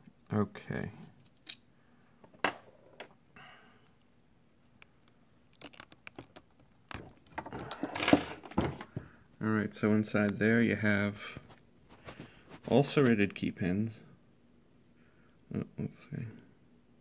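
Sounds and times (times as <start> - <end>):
rustling clatter of handling: 5.6 - 9.1.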